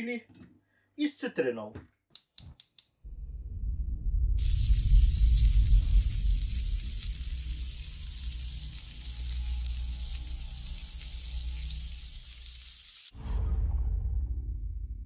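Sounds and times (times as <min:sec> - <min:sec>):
loud burst of sound: 0:03.1 - 0:10.5
vegetables sizzling in a wok: 0:04.4 - 0:13.2.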